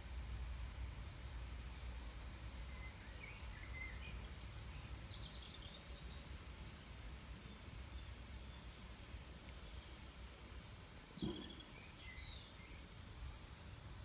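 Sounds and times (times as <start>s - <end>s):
small birds chirping: 1.8s - 13.0s.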